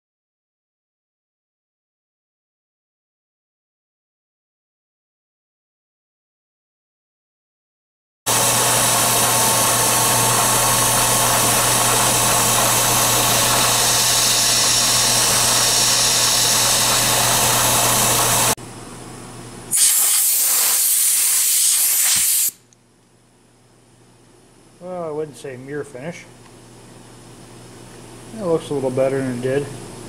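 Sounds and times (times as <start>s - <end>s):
milling machine cutting: 8.3s - 18.6s.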